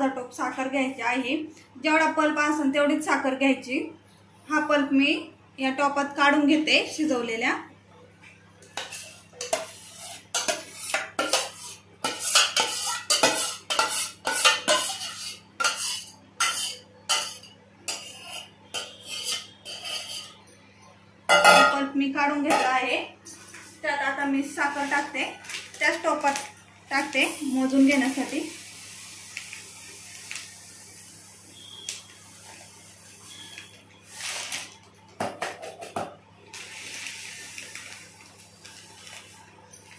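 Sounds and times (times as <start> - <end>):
steel spoon scraping pot: 8.8 - 20.5.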